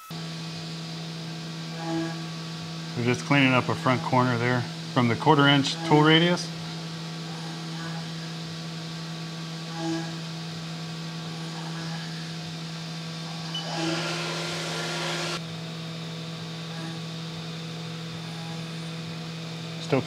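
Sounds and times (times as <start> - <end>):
cnc mill humming: 0.0 - 20.0.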